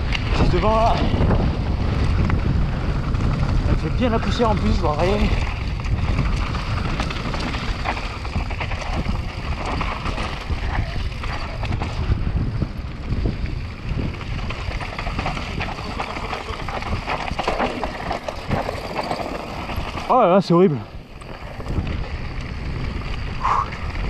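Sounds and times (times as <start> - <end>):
bike rattling and knocking: 0.0 - 24.0
wind across microphone: 0.0 - 24.0
tyres crunching on gravel: 14.2 - 23.3.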